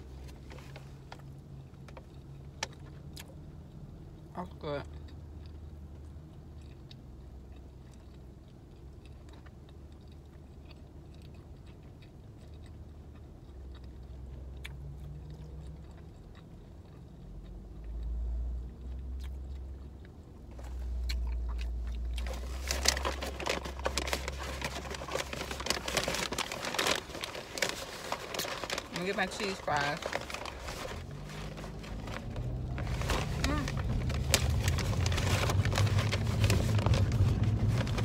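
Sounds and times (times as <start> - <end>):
low rumble: 20.6 - 38.0
paper bag rustling: 22.2 - 38.0.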